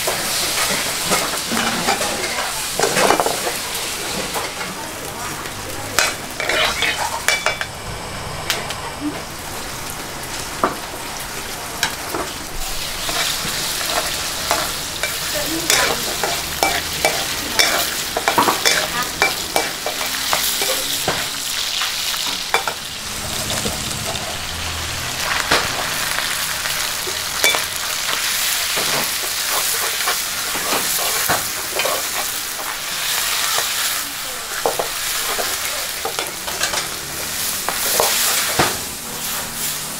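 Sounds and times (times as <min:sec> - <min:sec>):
chicken sizzling in oil: 0:00.0 - 0:08.3, 0:09.1 - 0:39.9
metal spatula scraping a wok: 0:00.6 - 0:03.3, 0:06.0 - 0:07.7, 0:12.9 - 0:32.3.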